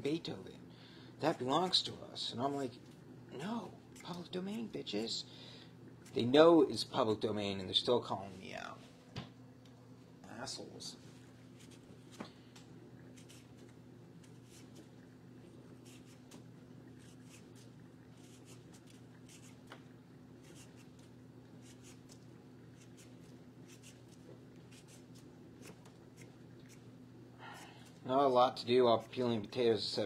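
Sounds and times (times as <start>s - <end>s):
steady low hum: 0.0s - 30.0s
peeler scraping potato: 13.1s - 14.8s, 15.8s - 16.4s, 17.0s - 19.6s, 20.4s - 22.2s, 22.8s - 26.8s.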